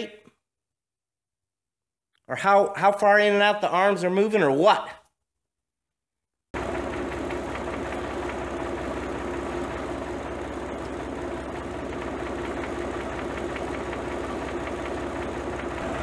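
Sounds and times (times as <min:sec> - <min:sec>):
tractor engine idling: 0:06.6 - 0:16.0.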